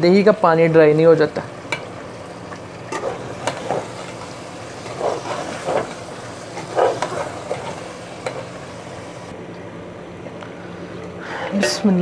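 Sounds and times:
food sizzling in pot: 0:01.4 - 0:09.3
metal spatula scraping pot: 0:02.9 - 0:08.5.

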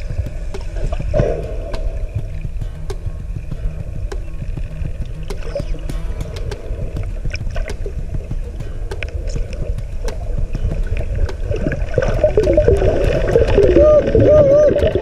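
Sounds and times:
low rumble of water: 0:00.0 - 0:15.0
whales clicking underwater: 0:00.0 - 0:15.0
wavering tone: 0:11.5 - 0:15.0.

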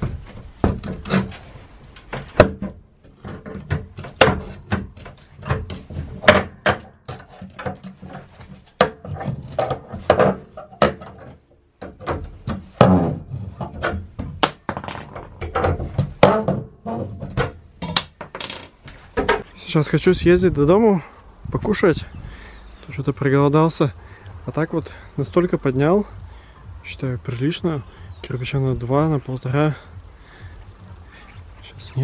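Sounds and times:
crowbar knocking on metal and wood: 0:02.1 - 0:18.6.

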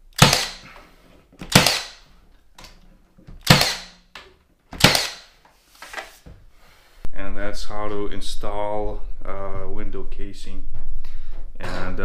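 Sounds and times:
nail gun firing into wood: 0:00.1 - 0:00.7, 0:01.4 - 0:02.0, 0:03.4 - 0:04.0, 0:04.8 - 0:05.4.

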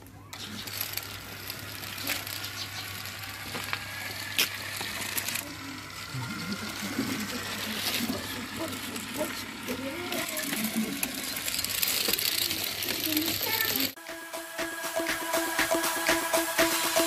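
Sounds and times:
small electric motor running: 0:00.3 - 0:17.0
tines scraping over gravel: 0:00.4 - 0:14.0.

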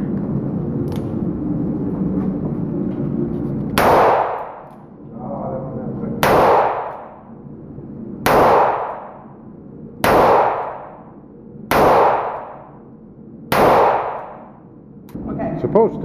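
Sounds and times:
revolver shots echoing: 0:03.8 - 0:04.7, 0:06.2 - 0:07.2, 0:08.2 - 0:09.4, 0:10.0 - 0:11.1, 0:11.7 - 0:12.8, 0:13.5 - 0:14.6.

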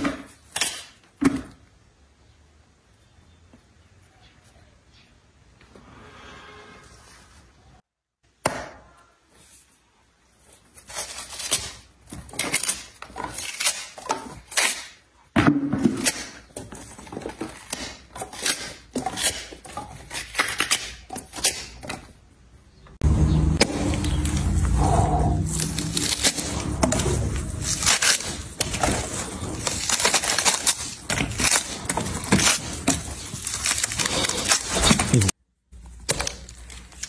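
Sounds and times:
watermelon cracking and tearing: 0:10.4 - 0:15.3, 0:15.9 - 0:22.0, 0:23.5 - 0:37.0.

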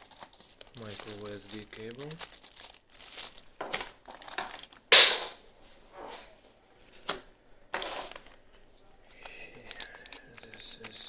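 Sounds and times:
plastic bags crinkling: 0:00.0 - 0:04.9, 0:09.2 - 0:11.0.

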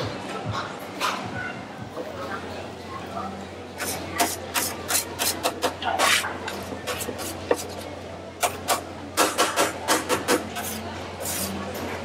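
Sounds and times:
quick scraping and knocking strokes: 0:03.8 - 0:07.8, 0:09.5 - 0:11.6.

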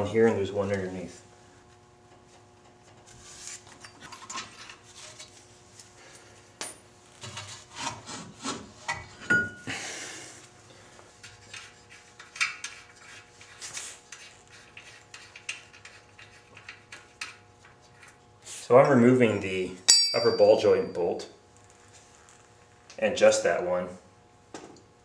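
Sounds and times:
metal clicks scrapes and knocks: 0:11.2 - 0:13.5, 0:14.1 - 0:18.2
sharp metal clank ringing: 0:19.8 - 0:21.0.

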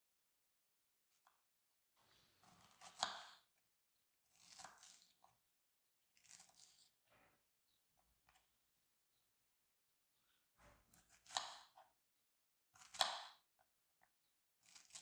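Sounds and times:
knife slicing strawberries on board: 0:02.4 - 0:03.5, 0:04.3 - 0:05.3, 0:10.9 - 0:11.8, 0:12.8 - 0:13.5, 0:14.6 - 0:15.0.

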